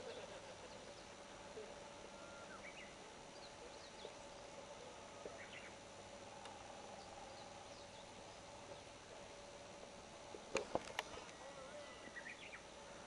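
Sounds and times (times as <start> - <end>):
faint hum and hiss: 0.0 - 13.0
bird chirps: 2.1 - 4.3, 5.2 - 5.8, 11.4 - 12.7.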